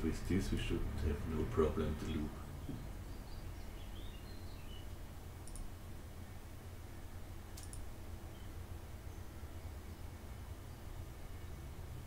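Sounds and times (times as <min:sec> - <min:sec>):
low steady hum: 0:00.0 - 0:12.0
computer mouse clicks: 0:05.4 - 0:05.7, 0:07.5 - 0:07.9.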